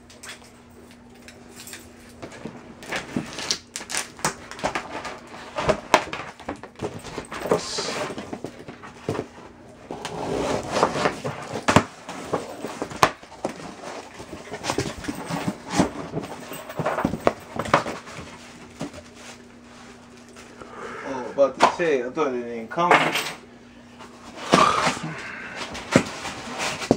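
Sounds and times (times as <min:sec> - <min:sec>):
packing tape slit and scraped: 0:02.8 - 0:06.1, 0:10.0 - 0:13.7
cardboard clicks rustles and knocks: 0:10.0 - 0:19.4, 0:25.6 - 0:26.9.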